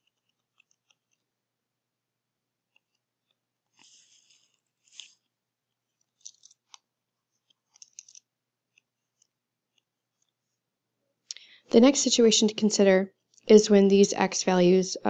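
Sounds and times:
stylus scratching on tablet: 0:02.7 - 0:05.9.

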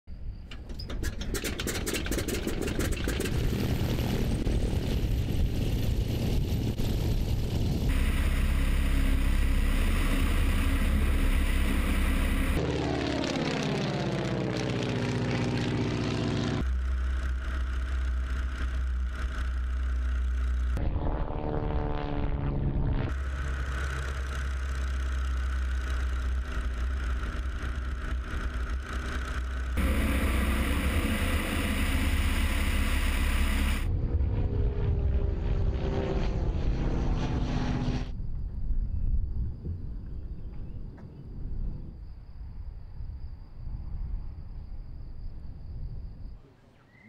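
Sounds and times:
biplane radial engine: 0:00.5 - 0:39.0
plane passing by: 0:02.0 - 0:38.5.

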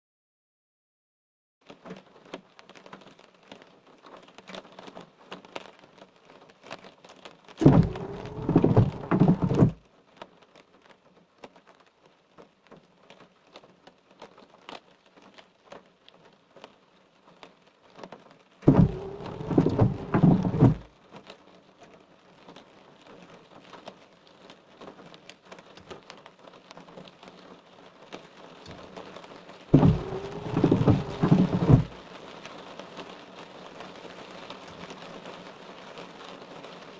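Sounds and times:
rain pattering: 0:01.6 - 0:36.9
wiper blades sweeping wet glass: 0:07.6 - 0:09.8, 0:18.6 - 0:20.9, 0:29.7 - 0:32.0
wiper motor whine: 0:07.6 - 0:09.8, 0:18.6 - 0:20.9, 0:29.7 - 0:32.0.

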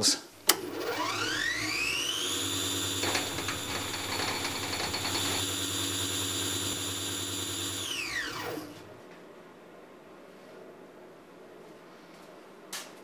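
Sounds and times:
electric motor whine: 0:00.6 - 0:08.9.

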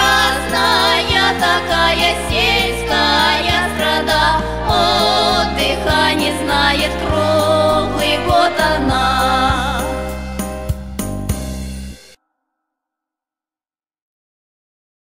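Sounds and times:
stepping bass line: 0:00.0 - 0:12.0
background music song: 0:00.0 - 0:12.2.

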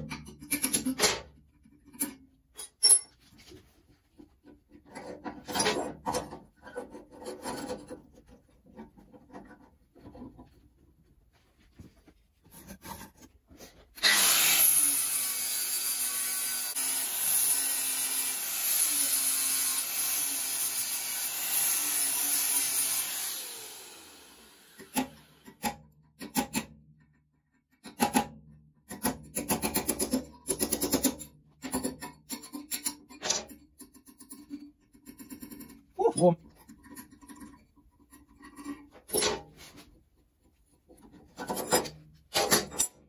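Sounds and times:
angle grinder grinding metal: 0:14.0 - 0:25.4.

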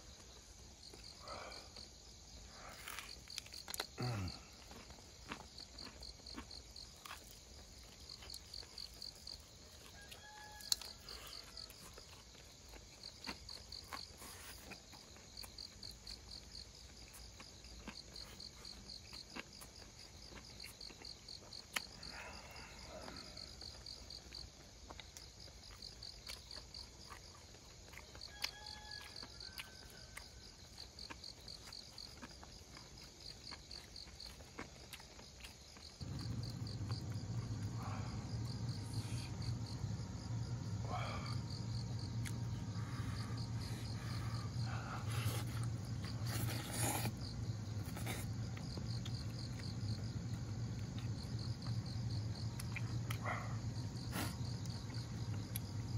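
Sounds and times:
crickets chirping: 0:00.0 - 0:55.9
steady low hum: 0:36.0 - 0:55.9.

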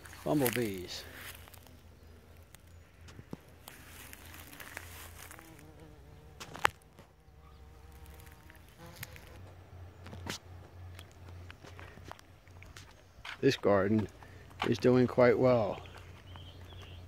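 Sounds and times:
bumblebees buzzing: 0:00.0 - 0:12.1.

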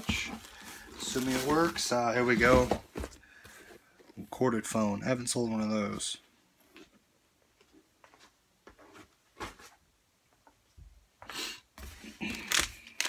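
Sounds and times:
packaging rustling: 0:00.0 - 0:03.2, 0:12.2 - 0:13.0.

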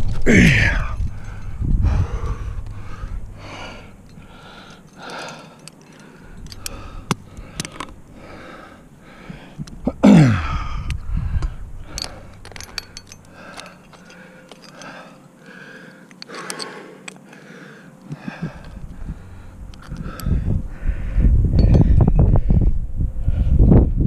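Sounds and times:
climbing gear metal clicks: 0:00.0 - 0:08.4, 0:10.8 - 0:20.4
heavy rhythmic breathing: 0:00.0 - 0:23.8
person groaning: 0:00.2 - 0:01.0, 0:09.8 - 0:10.9.

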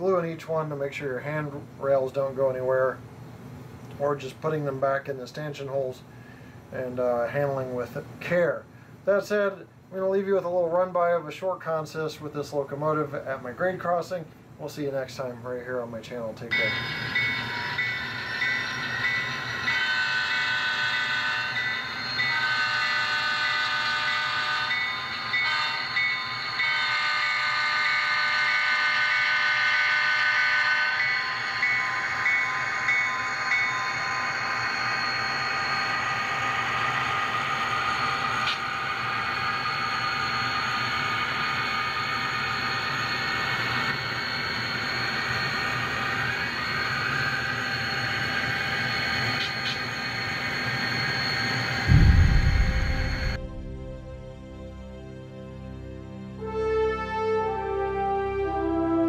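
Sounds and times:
rapidly ringing bell: 0:16.5 - 0:22.4
model train air horn blasts: 0:19.6 - 0:34.1
diesel engine sound: 0:51.9 - 0:54.8.

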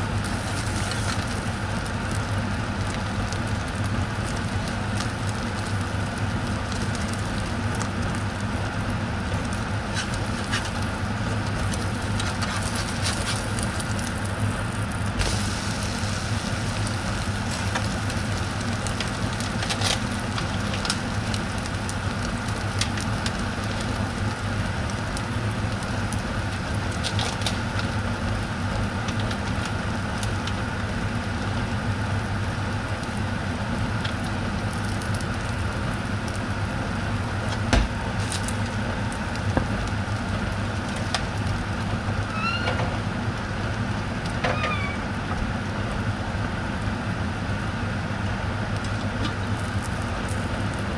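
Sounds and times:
egg sizzling in a frying pan: 0:00.0 - 0:50.9
short squeaky sounds: 0:42.3 - 0:42.9, 0:44.5 - 0:45.1.

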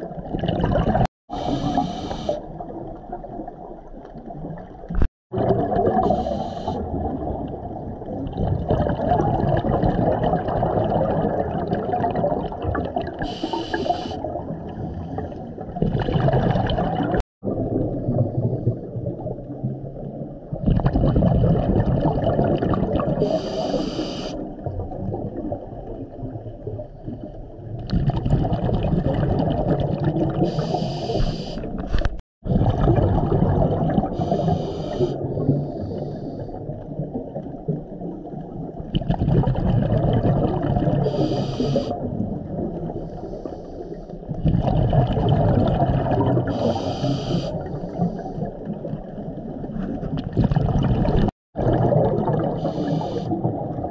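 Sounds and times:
exhaled bubbles rushing: 0:00.0 - 0:23.6, 0:24.4 - 0:30.8, 0:32.4 - 0:43.2, 0:44.3 - 0:53.9
scuba regulator inhale hiss: 0:01.3 - 0:02.4, 0:06.0 - 0:06.8, 0:13.2 - 0:14.2, 0:23.2 - 0:24.4, 0:30.4 - 0:31.7, 0:34.2 - 0:36.6, 0:41.0 - 0:42.0, 0:46.5 - 0:48.4, 0:52.6 - 0:53.4.

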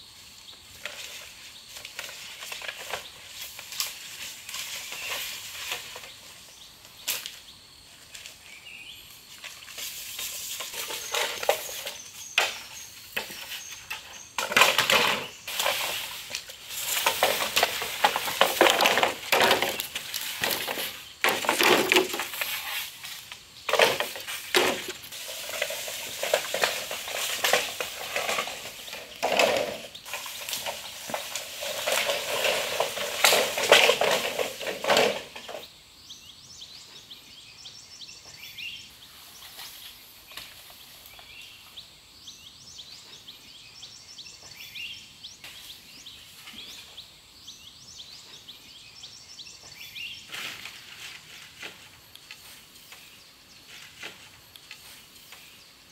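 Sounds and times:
crackling of dry leaves: 0:00.0 - 0:35.7, 0:49.7 - 0:55.9
bamboo poles knocking together: 0:10.2 - 0:35.6.

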